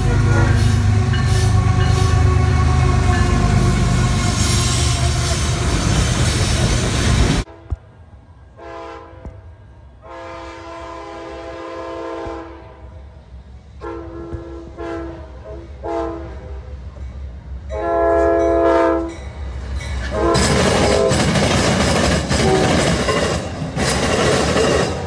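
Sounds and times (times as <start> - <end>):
locomotive air horn blasts: 0.0 - 5.9, 8.6 - 13.0, 13.8 - 16.6, 17.7 - 19.2, 20.1 - 21.3, 22.4 - 22.8
train passing rush: 0.0 - 25.0.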